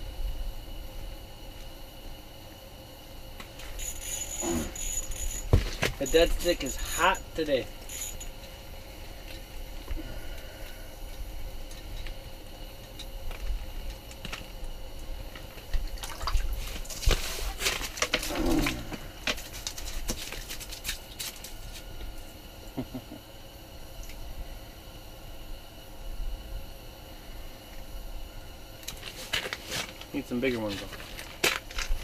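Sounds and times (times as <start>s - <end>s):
water splashing and dripping: 15.9s - 16.6s.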